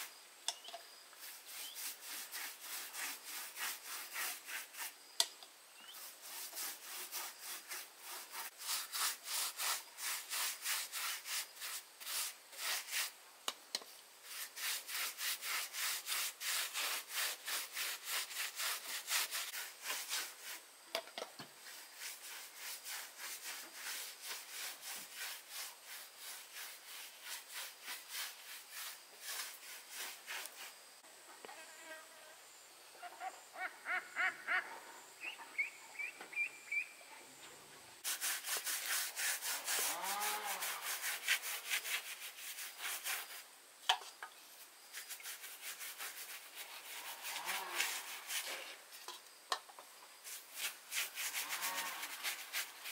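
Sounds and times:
hand saw cutting wood: 0:01.2 - 0:04.9, 0:06.1 - 0:13.1, 0:14.3 - 0:20.6, 0:38.0 - 0:43.4, 0:45.0 - 0:48.8, 0:50.3 - 0:52.9
bird calling: 0:32.9 - 0:37.3.

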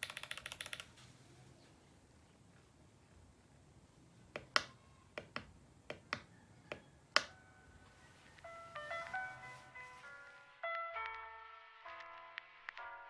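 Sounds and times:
mechanical keyboard clicks: 0:00.0 - 0:00.9
background music with held notes: 0:07.2 - 0:13.0.

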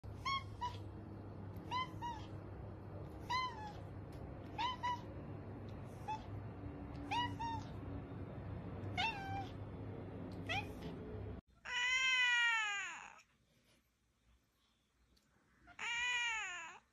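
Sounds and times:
steady low hum: 0:00.0 - 0:11.4
cat meowing: 0:00.1 - 0:00.9, 0:01.5 - 0:05.2, 0:05.9 - 0:07.9, 0:08.8 - 0:09.6, 0:10.4 - 0:11.0, 0:11.6 - 0:13.2, 0:15.6 - 0:16.8.

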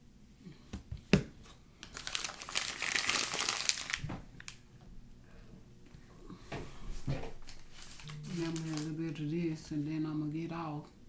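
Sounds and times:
packaging crinkling: 0:01.8 - 0:04.6, 0:07.4 - 0:09.2.

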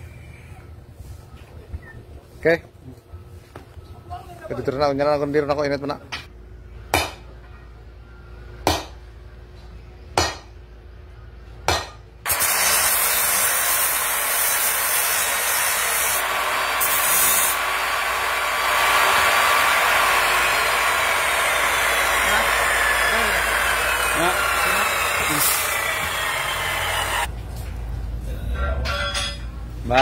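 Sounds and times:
cut-off saw grinding: 0:12.3 - 0:27.3
hammer clanging on steel: 0:28.8 - 0:29.5.

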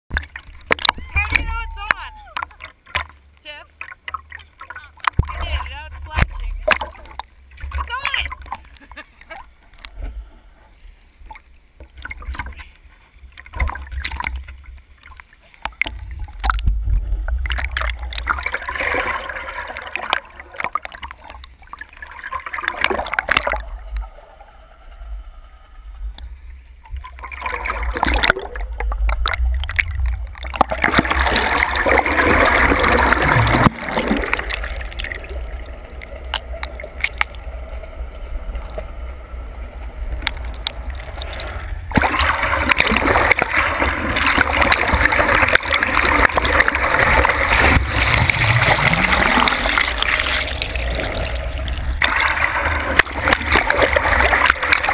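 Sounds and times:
water rushing and bubbling: 0:00.1 - 0:54.9
low rumble: 0:23.4 - 0:44.2, 0:44.9 - 0:54.4.

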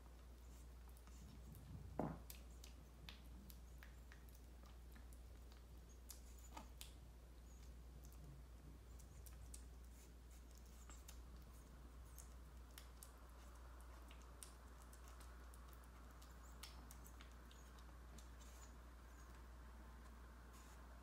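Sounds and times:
kitten lapping food: 0:00.0 - 0:21.0
low steady hum: 0:00.0 - 0:21.0.

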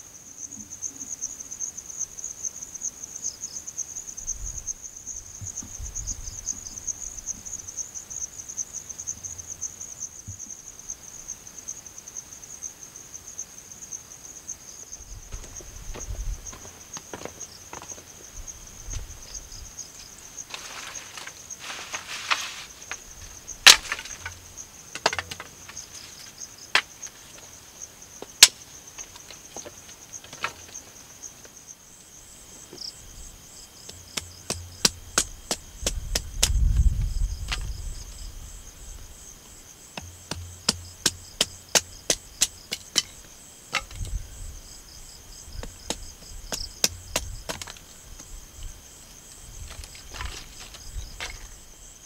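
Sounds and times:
insects chirping: 0:00.0 - 0:52.0
machete chopping dry wood: 0:23.7 - 0:24.4, 0:33.9 - 0:36.6, 0:40.0 - 0:43.2, 0:45.6 - 0:47.8.

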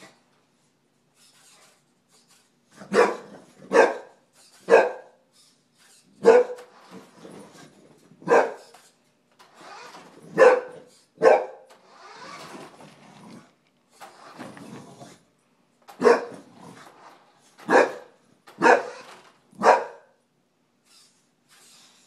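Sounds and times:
dog barking: 0:02.8 - 0:05.2, 0:06.2 - 0:06.6, 0:08.2 - 0:08.7, 0:10.3 - 0:11.7, 0:16.0 - 0:16.4, 0:17.6 - 0:19.0, 0:19.6 - 0:20.2.

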